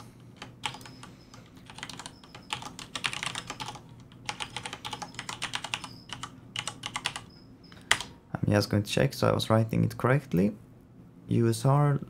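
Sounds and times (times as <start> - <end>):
keyboard typing: 0.0 - 8.2.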